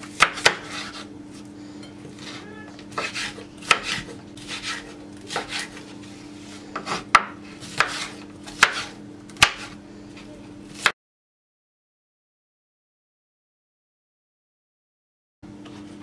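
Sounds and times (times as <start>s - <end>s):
knife chopping on wooden board: 0.1s - 1.1s, 2.1s - 5.8s, 6.7s - 9.8s, 10.7s - 10.9s.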